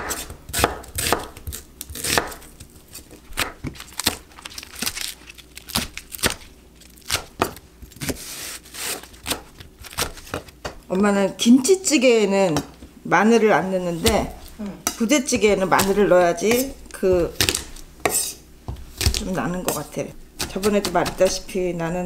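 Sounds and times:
knife chopping on cutting board: 0.0 - 2.5, 14.0 - 21.4.

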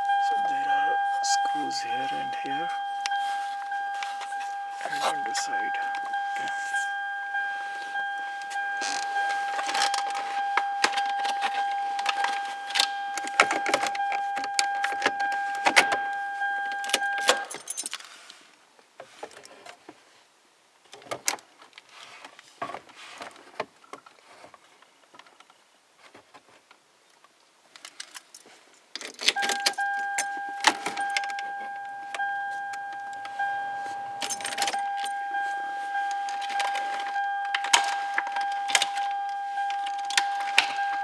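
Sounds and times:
steady electronic tone: 0.0 - 13.2, 29.8 - 41.0
keys jangling: 16.9 - 18.0, 34.2 - 35.2.

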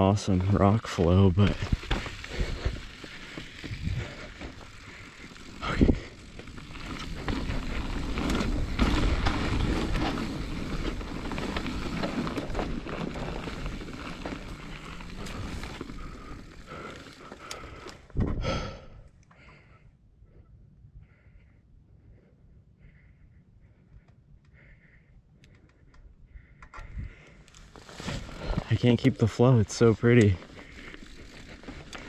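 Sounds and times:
bike rattling over bumps: 0.0 - 18.5, 26.8 - 32.0
bike tyres rolling over dirt: 0.0 - 19.6, 26.4 - 32.0.

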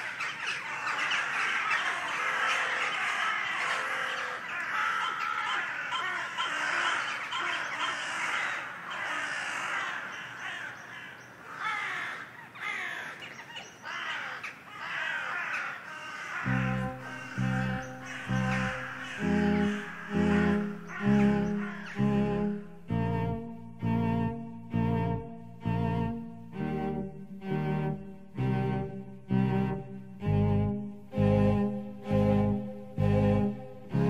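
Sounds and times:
birds calling and chattering: 0.0 - 22.9.

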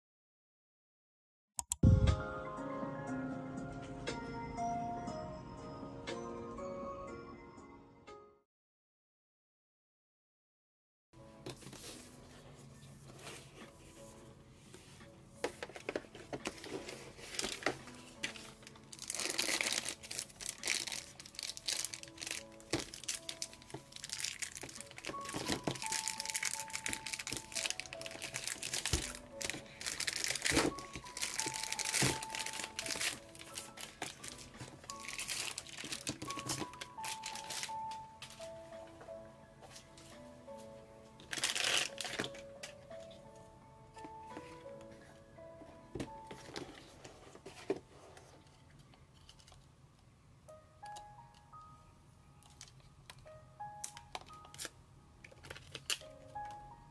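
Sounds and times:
soft lo-fi jazz-hop music: 11.2 - 18.7
plastic wrapping crinkling and tearing: 16.3 - 38.4, 41.2 - 42.8, 53.8 - 56.4.

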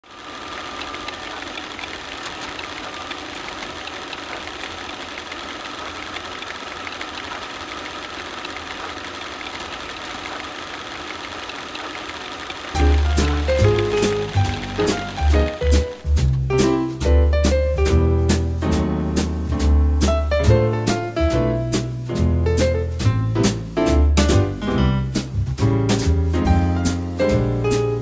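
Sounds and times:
film projector whirring: 0.0 - 16.4.

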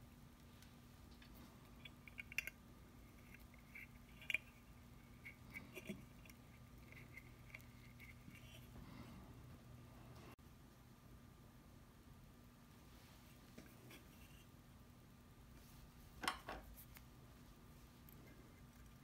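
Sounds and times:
low steady hum: 0.0 - 19.0
small parts clicking and scratching: 0.4 - 8.8.

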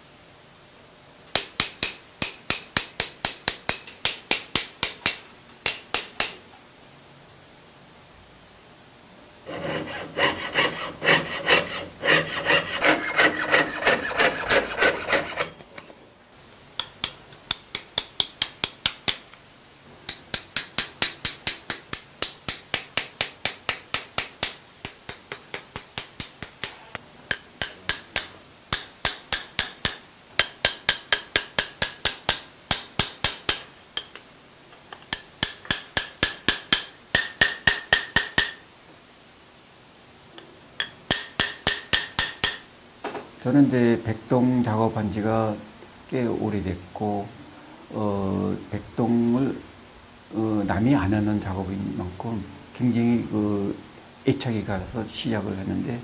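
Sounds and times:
file rasping on metal: 9.5 - 15.6.

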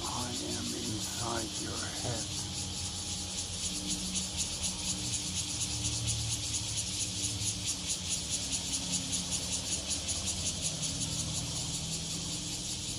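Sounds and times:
faint low hum: 0.0 - 4.5
cicada buzzing: 0.0 - 12.9.

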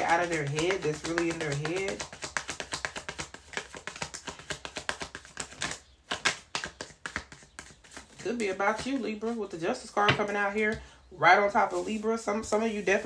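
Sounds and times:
cards being shuffled: 0.0 - 9.4.

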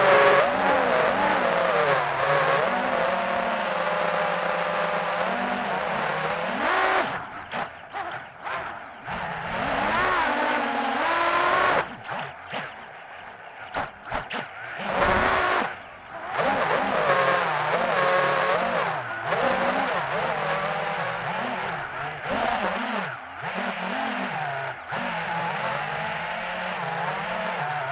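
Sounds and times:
drone motors whining: 0.0 - 27.9.

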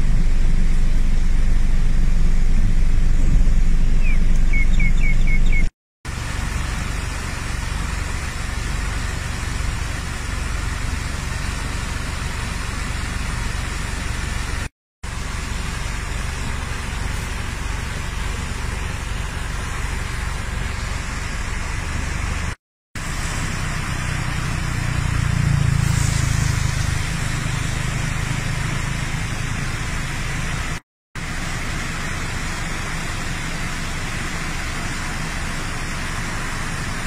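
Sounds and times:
low rumble: 0.0 - 5.6.

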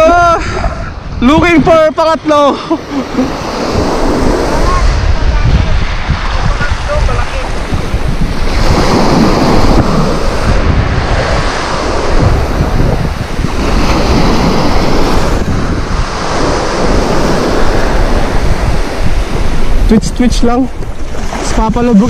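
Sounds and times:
surf washing up a sandy beach: 0.0 - 22.0
wind buffeting microphone: 0.0 - 22.0.

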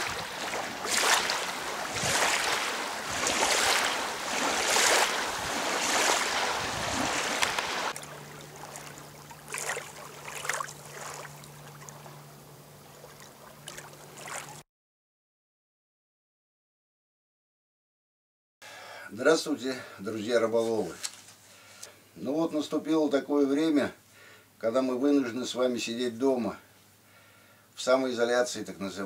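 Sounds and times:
waves lapping on pebbly shore: 0.0 - 12.0, 13.0 - 14.6
steady low hum: 0.0 - 14.6.

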